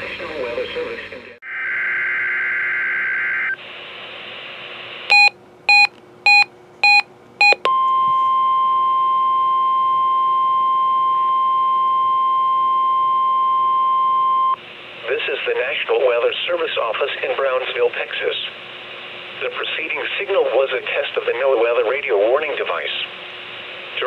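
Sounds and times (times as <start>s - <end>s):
steady warning alarm tone: 5.1s - 7.9s
short beeps: 5.1s - 14.6s.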